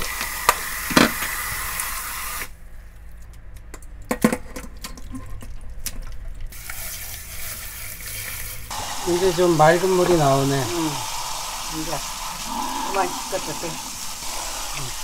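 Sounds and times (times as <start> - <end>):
tap water running: 0.0 - 2.5, 4.9 - 15.0.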